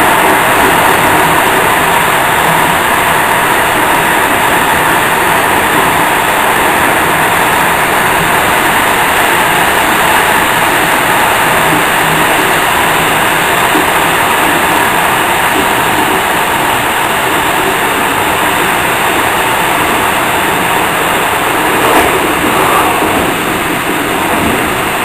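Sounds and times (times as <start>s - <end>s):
train wheels running on rails: 0.0s - 25.0s.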